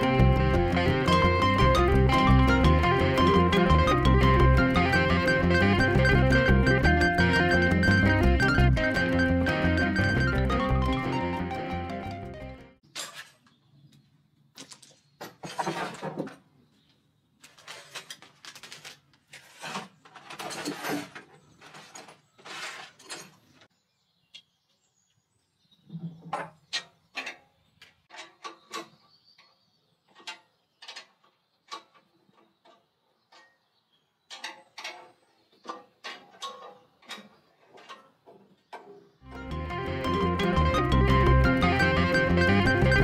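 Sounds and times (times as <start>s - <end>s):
scraping and rustling: 17.4s - 23.6s.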